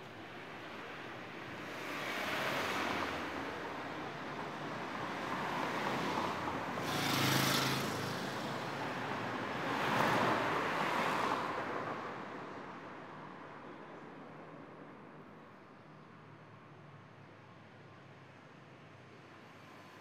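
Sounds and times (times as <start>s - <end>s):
road noise hiss: 0.0s - 11.5s, 15.2s - 20.0s
cars passing: 0.3s - 12.0s.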